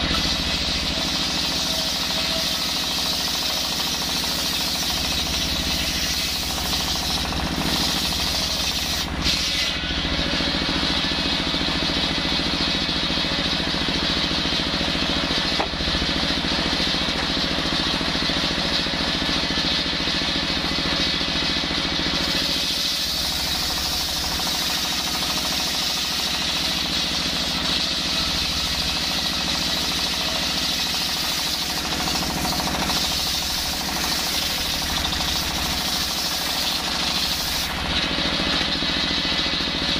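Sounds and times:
circular saw whining through wood: 0.0s - 12.0s, 22.0s - 39.9s
diesel engine chugging: 23.0s - 39.9s.

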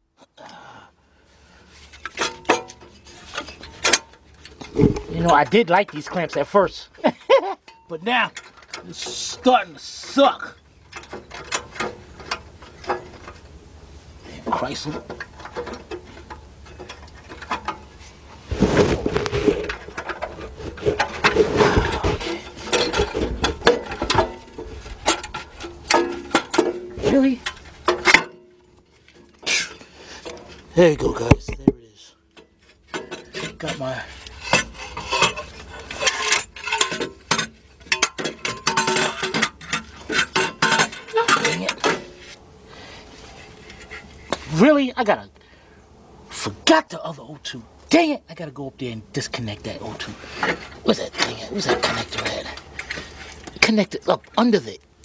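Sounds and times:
metal tools clinking: 1.8s - 13.6s, 14.5s - 18.4s, 19.4s - 42.4s, 49.8s - 54.6s
metal clicking and knocking: 1.9s - 13.6s, 14.5s - 18.0s, 19.1s - 29.5s, 30.2s - 42.4s.

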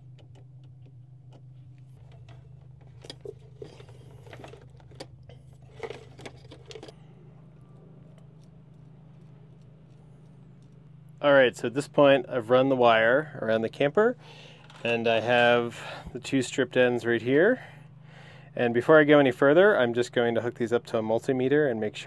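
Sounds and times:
steady low hum: 0.0s - 22.0s
clicks and scrapes of small tools: 0.2s - 7.0s.

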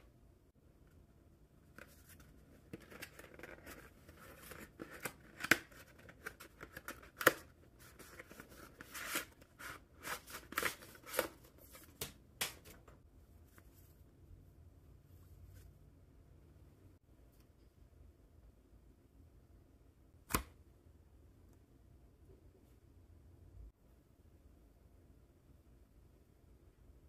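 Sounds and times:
hands rustling phone packaging: 1.7s - 12.9s.

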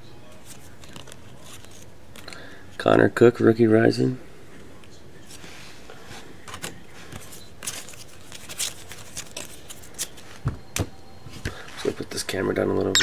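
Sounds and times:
foil cards flicking and rustling: 0.4s - 2.3s, 6.5s - 10.4s.

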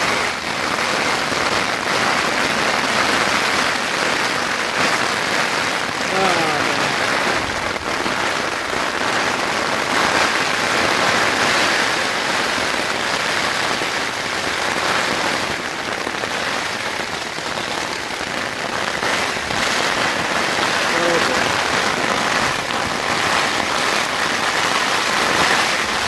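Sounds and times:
rain pattering on a tarp: 0.0s - 26.0s.

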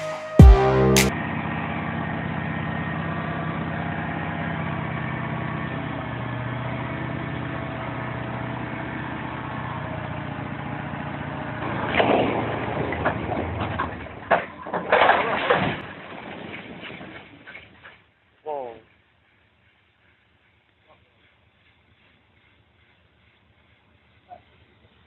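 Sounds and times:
truck engine running: 0.4s - 14.7s
blocks crashing and clattering: 13.8s - 17.8s.

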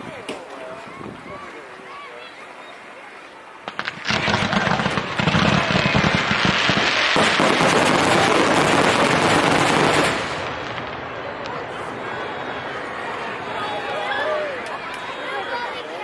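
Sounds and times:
fireworks cracking and thudding: 3.6s - 12.3s.

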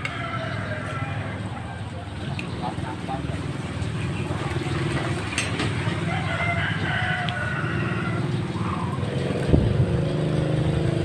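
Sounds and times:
rooster crowing: 0.0s - 1.8s, 5.8s - 8.4s
low motor hum: 0.0s - 11.0s.

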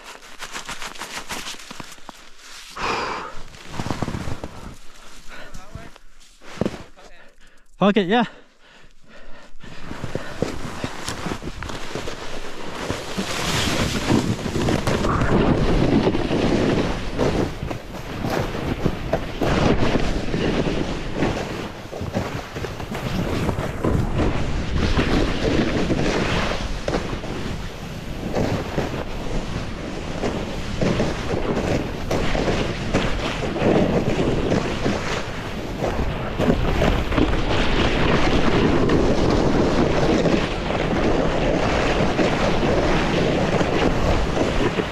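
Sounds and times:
snowboard sliding through snow: 0.0s - 7.2s, 9.6s - 44.9s
wind buffeting microphone: 9.3s - 44.9s.

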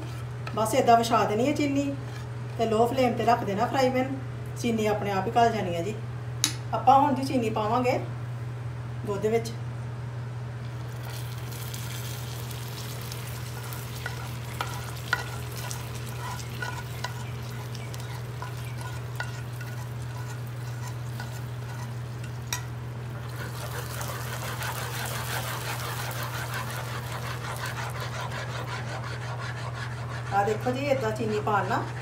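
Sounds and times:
steady low hum: 0.0s - 32.0s
ladle stirring with fine crackle: 10.7s - 32.0s
metal spoon scraping frying pan: 13.3s - 22.7s, 23.3s - 32.0s.

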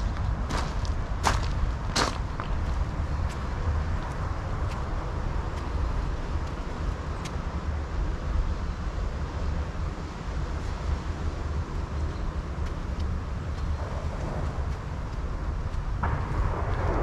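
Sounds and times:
faint ticks: 5.5s - 7.6s, 12.1s - 16.2s
low rumble: 11.1s - 17.0s.

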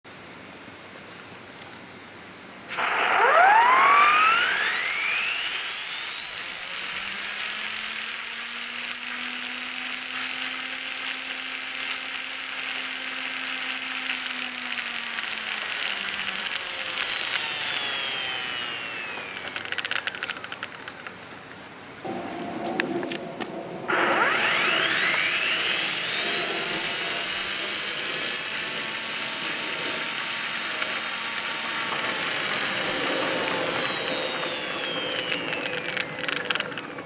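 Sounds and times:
steam turbine whine: 2.6s - 37.0s
steam hissing: 2.7s - 19.8s.

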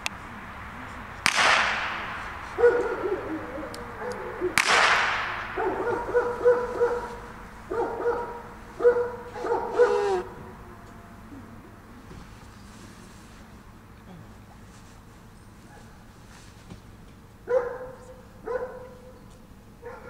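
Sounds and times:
blank pistol shot: 1.2s - 3.0s, 4.6s - 6.2s
short steady-pitched call: 9.0s - 11.4s.

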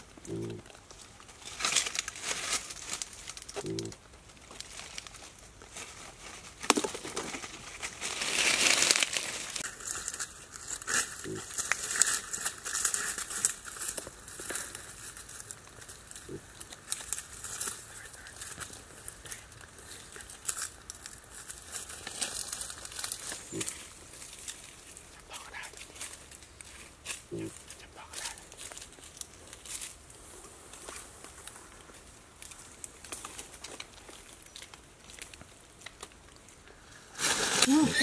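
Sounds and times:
dry leaves rustling and crackling: 0.0s - 38.0s
pig grunting: 0.2s - 0.7s, 3.6s - 4.0s, 27.3s - 27.7s.

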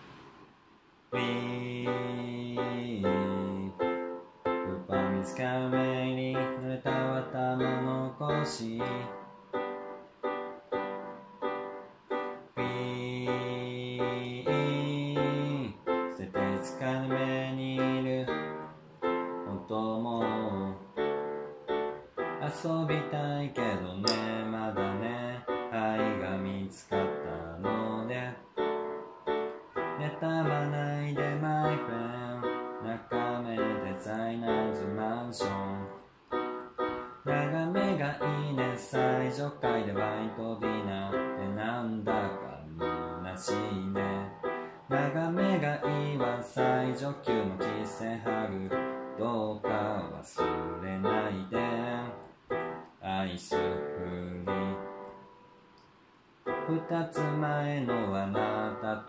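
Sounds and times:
electronic keyboard piano playing: 1.1s - 55.8s, 56.4s - 59.0s.

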